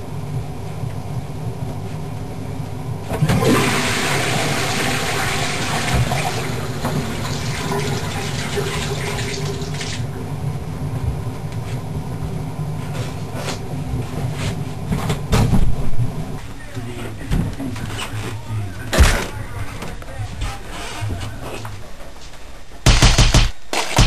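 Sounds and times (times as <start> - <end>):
low steady hum: 0.0 - 24.0
toilet cistern refilling: 3.2 - 10.1
sink tap running: 3.6 - 10.0.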